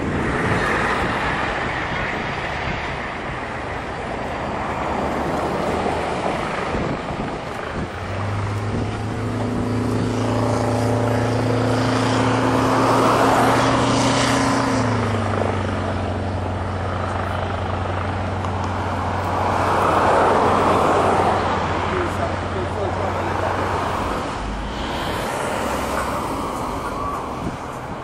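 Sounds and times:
steady rushing noise: 0.0s - 28.0s.

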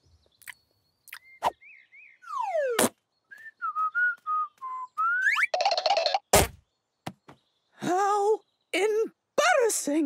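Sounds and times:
person whistling jaunty tune: 3.3s - 5.5s.

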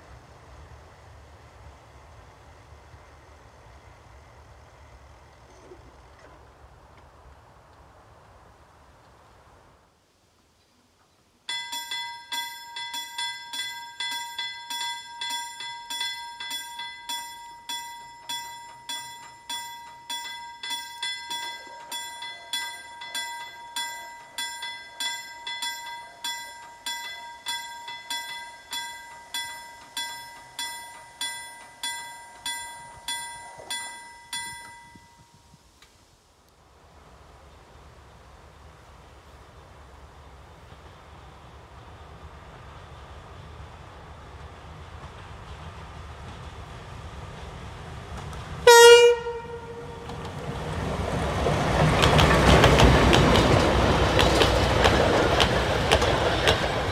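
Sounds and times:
level-crossing bell ringing: 11.5s - 35.4s.

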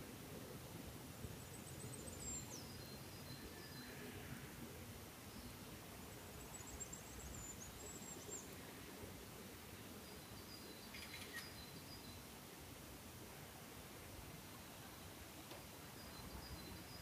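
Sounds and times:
faint high-pitched bird chirps: 1.5s - 4.4s, 10.0s - 12.2s.

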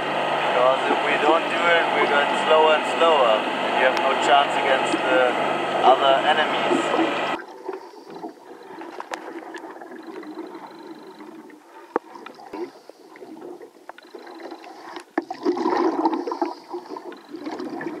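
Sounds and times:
underwater bubbling of exhaled breath: 6.6s - 18.0s.

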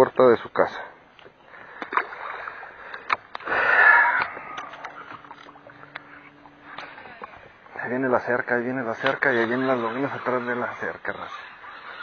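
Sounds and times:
faint low hum: 0.0s - 12.0s
water splashing and lapping: 1.4s - 7.8s.

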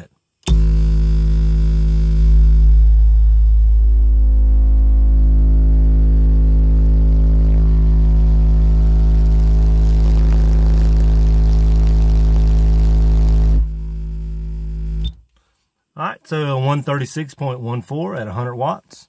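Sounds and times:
low bass test tone: 0.5s - 15.3s.

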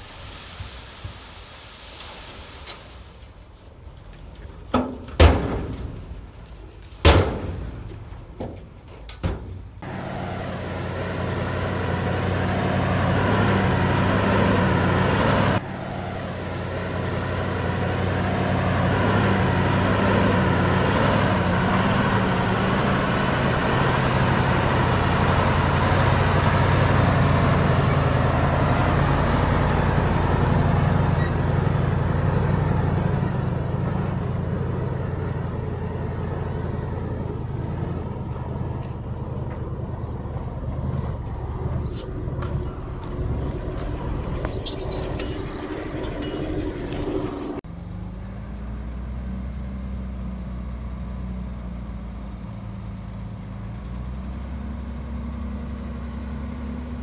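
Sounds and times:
heavy diesel engine running: 4.3s - 49.3s.

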